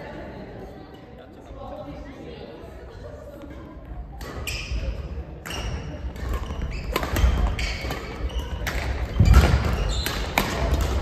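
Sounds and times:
shoes squeaking: 4.3 - 11.0
rackets striking shuttlecocks: 5.4 - 11.0.

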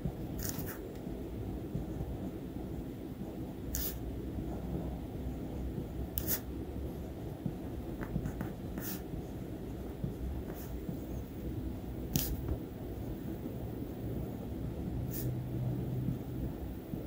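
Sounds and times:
low background rumble: 0.0 - 17.0
pen scratching on paper: 0.4 - 0.8, 3.7 - 4.0, 6.2 - 6.5, 8.1 - 9.4, 10.4 - 10.8.

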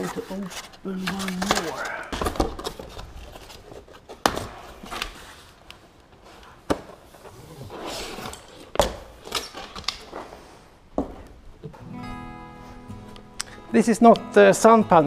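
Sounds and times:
plastic rustling: 0.0 - 10.6
plastic sheet scraping slide: 7.2 - 8.5.

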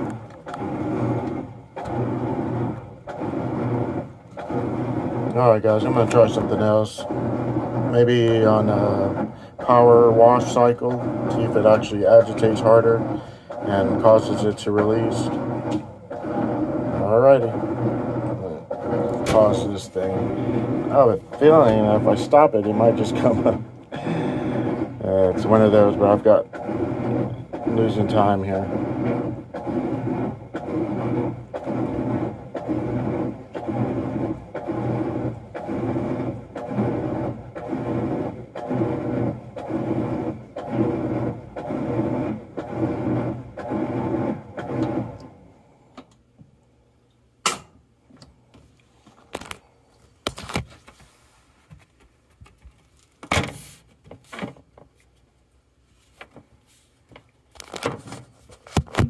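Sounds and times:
churning water: 0.0 - 45.2
motor humming in strokes: 0.0 - 45.3
washing machine agitating: 0.0 - 45.6.

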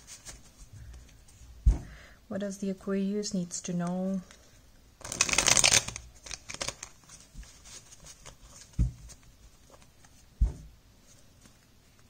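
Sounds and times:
cards clicking: 5.0 - 6.9.

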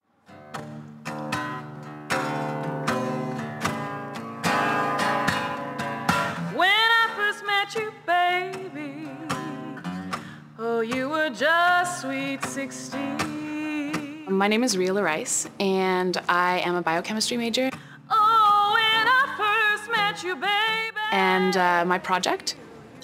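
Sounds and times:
acoustic guitar strumming: 0.2 - 22.7
woman singing with vibrato: 6.5 - 17.0, 17.6 - 22.6.

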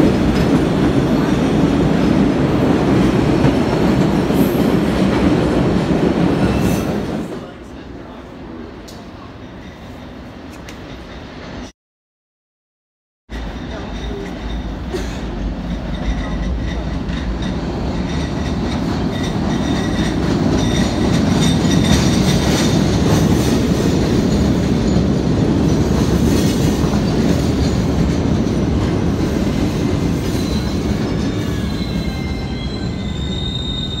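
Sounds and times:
subway train rumbling: 0.0 - 11.7, 13.3 - 34.0
high-pitched brake squeals: 30.4 - 34.0.

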